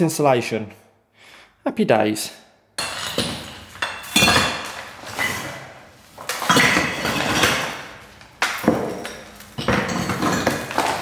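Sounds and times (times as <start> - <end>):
rubble clattering and clinking: 2.8 - 11.0.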